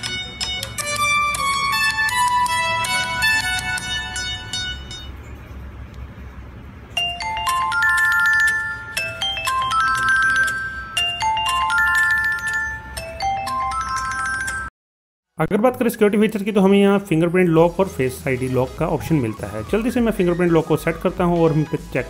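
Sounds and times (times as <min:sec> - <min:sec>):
phone ringtone chiming melody: 0:00.0 - 0:05.2, 0:06.9 - 0:14.7.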